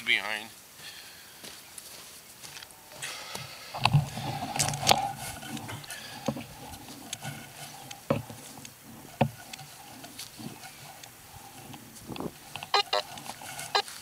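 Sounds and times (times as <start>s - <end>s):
handling noise: 3.8s - 14.0s
metal detector tone: 6.2s - 14.0s.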